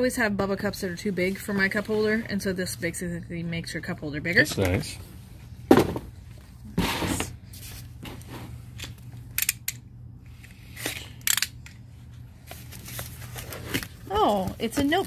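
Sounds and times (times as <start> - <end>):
cardboard boxes being handled: 12.4 - 15.0.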